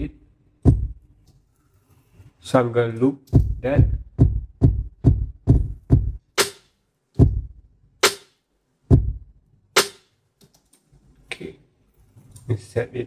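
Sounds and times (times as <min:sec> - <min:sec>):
trap drum loop: 0:00.0 - 0:01.0, 0:03.3 - 0:08.2, 0:08.9 - 0:10.0.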